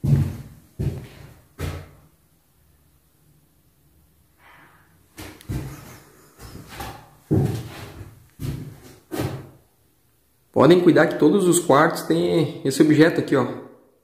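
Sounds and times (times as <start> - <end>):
footsteps thudding on floor: 0.0 - 2.0, 5.2 - 9.6.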